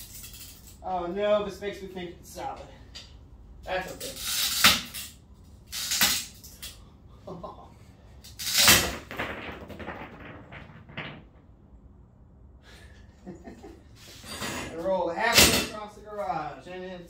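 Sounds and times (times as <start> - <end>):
geode cracking knocks: 8.8 - 11.7.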